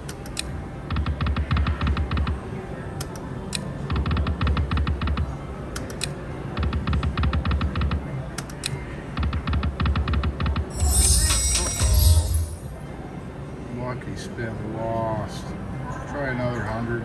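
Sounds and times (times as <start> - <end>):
slot machine reels clicking: 10.6 - 12.7.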